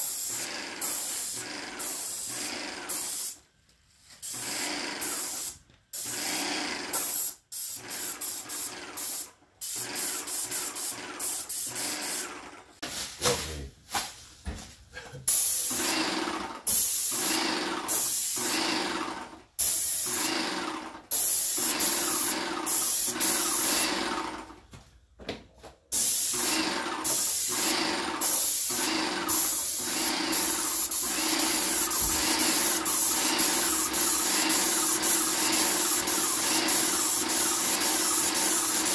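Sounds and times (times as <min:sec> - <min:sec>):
paint sprayer hissing: 0:00.0 - 0:03.5, 0:04.1 - 0:13.0, 0:15.3 - 0:19.0, 0:21.0 - 0:24.4, 0:25.9 - 0:38.9.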